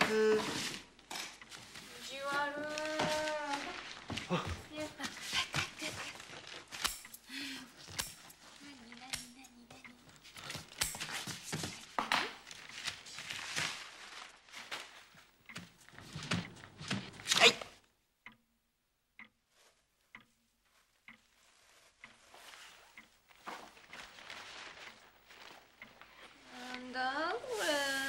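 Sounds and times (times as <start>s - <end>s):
paper tearing and rustling: 24.0s - 25.7s.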